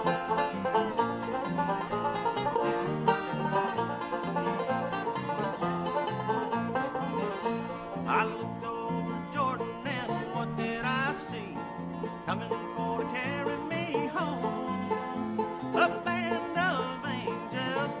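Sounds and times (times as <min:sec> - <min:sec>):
bluegrass music: 0:00.0 - 0:18.0.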